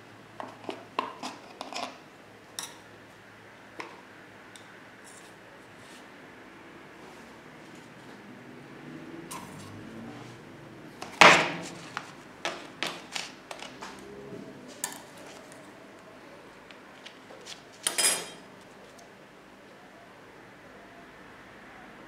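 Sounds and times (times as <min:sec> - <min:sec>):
metal spatulas clinking and tapping: 0:17.8 - 0:18.4.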